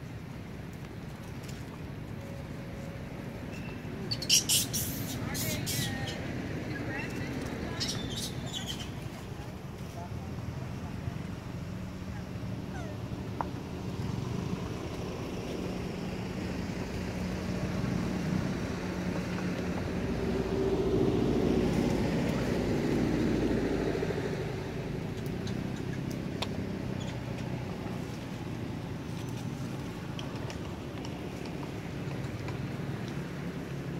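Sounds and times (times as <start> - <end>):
vehicle engine passing by: 12.4 - 30.6.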